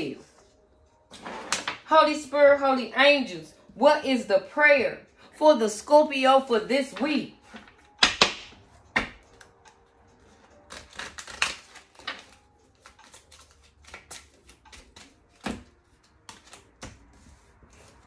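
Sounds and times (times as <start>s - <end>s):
cards being shuffled: 10.6s - 18.0s.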